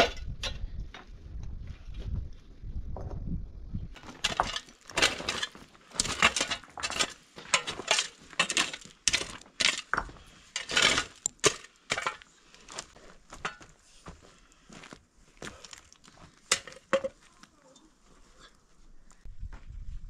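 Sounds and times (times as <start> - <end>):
gravel clinking on shovel: 4.0 - 12.8
shovel digging stony dirt: 4.0 - 13.7.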